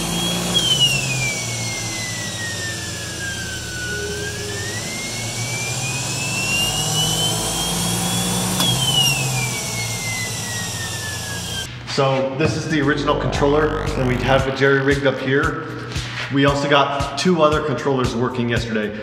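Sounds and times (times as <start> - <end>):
electric motor whine revving: 0.0 - 11.7, 12.9 - 15.1
low hum: 12.4 - 16.2.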